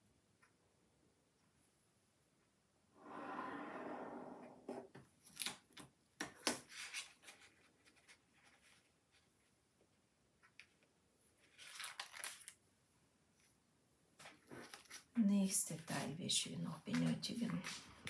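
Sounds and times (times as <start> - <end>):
paper rustle: 6.6 - 9.5, 10.6 - 12.6, 14.2 - 15.1.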